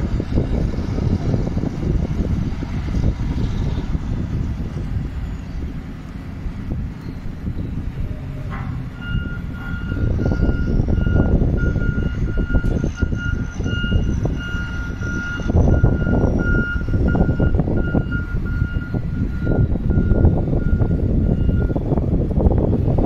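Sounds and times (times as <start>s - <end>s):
loud low rumbling: 0.0s - 23.0s.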